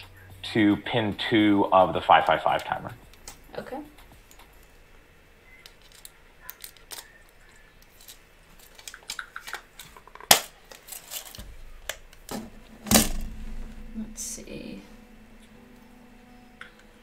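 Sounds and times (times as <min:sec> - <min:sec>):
electronic parts clicking and rattling: 0:05.6 - 0:13.5.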